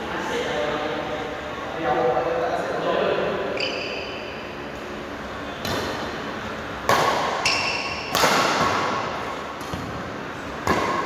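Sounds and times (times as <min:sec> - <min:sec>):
badminton racket hits: 0:06.8 - 0:09.8.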